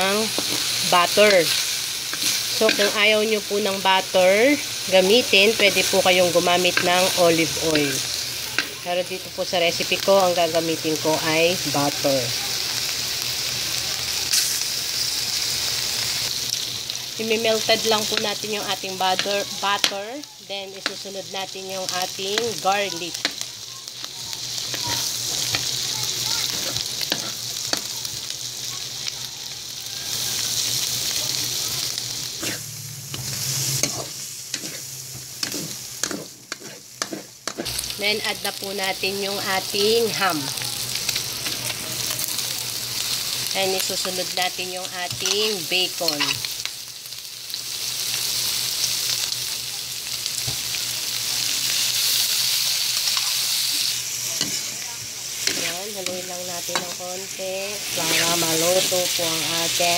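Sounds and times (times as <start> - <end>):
butter sizzling in a wok: 0.0 - 59.9
metal ladle scraping a pan: 32.4 - 37.7.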